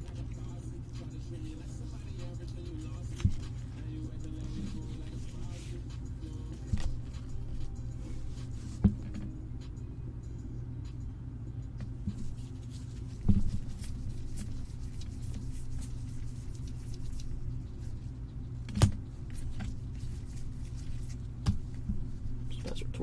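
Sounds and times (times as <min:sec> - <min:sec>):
steady low hum: 0:00.0 - 0:23.0
trading cards sliding and flipping: 0:02.1 - 0:09.3.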